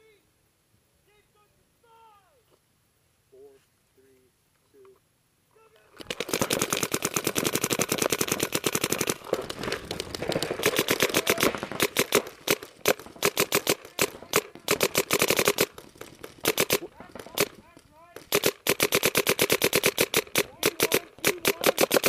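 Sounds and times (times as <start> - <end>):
paintball markers firing: 6.0 - 22.0.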